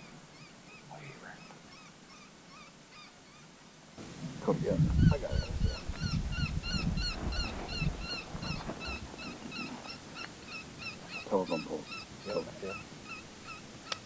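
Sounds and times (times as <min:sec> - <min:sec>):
wind rumble on microphone: 0:04.1 - 0:09.9
predator call squeaky notes: 0:07.4 - 0:14.0.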